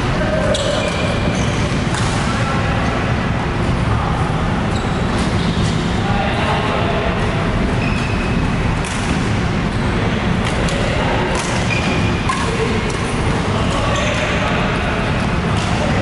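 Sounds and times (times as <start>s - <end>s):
loud sports hall din: 0.0s - 16.0s
racket striking shuttlecock: 8.8s - 9.3s, 10.4s - 13.2s.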